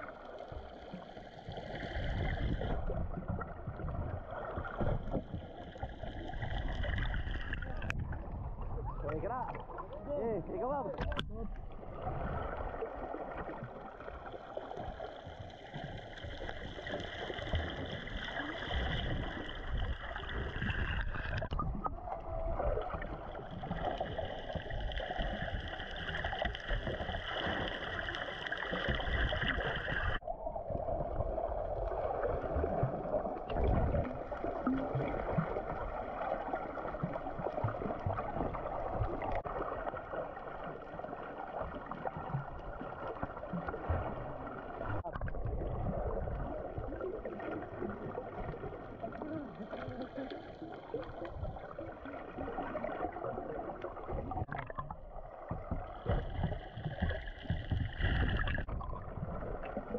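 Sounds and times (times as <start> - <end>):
underwater gurgling: 0.0 - 59.9.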